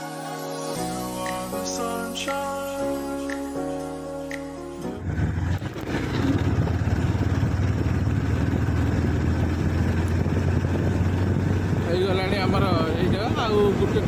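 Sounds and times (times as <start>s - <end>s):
background music: 0.0s - 5.1s
motorcycle engine drone: 4.8s - 14.0s
road and wind noise: 4.8s - 14.0s.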